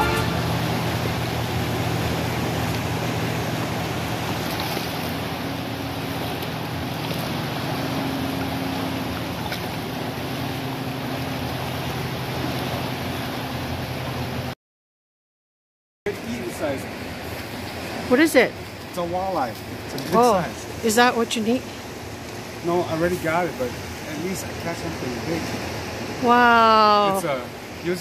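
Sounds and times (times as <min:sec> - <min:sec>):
low steady hum: 0:00.0 - 0:14.5
river water rushing: 0:00.0 - 0:14.5, 0:16.1 - 0:28.0.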